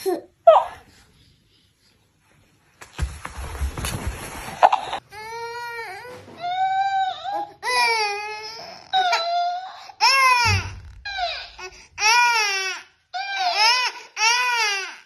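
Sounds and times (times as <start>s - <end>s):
baby crying: 5.1s - 15.0s.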